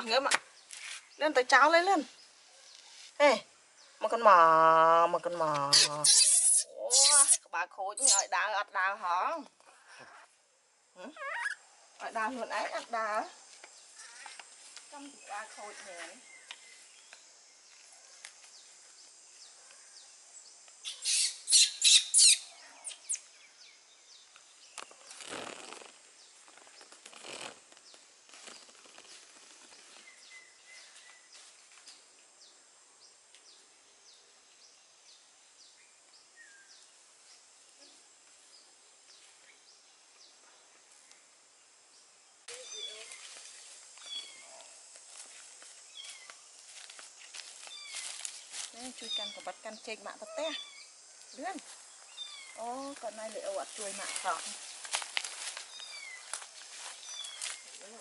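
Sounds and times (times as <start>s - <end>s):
steady high hiss: 0.0s - 58.0s
footsteps through rustling grass: 14.0s - 17.0s, 42.6s - 49.4s, 51.6s - 58.0s.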